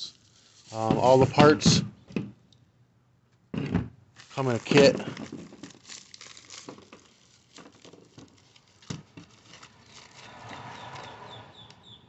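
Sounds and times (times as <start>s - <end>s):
plastic bag rustling: 0.0s - 1.7s, 4.1s - 11.0s.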